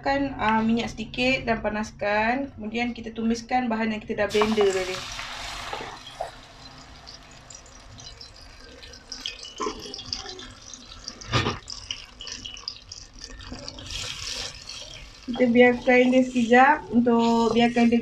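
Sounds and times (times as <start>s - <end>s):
paste sizzling in hot oil: 4.3s - 17.8s.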